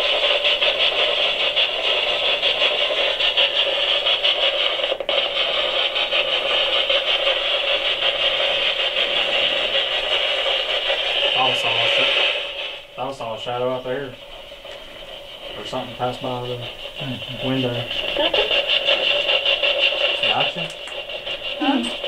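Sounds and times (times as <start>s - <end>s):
choppy radio static hiss: 0.0s - 22.0s.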